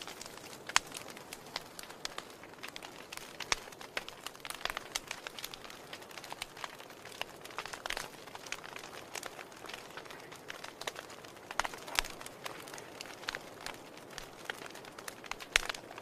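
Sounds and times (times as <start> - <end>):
logs crackling in fireplace: 0.0 - 16.0.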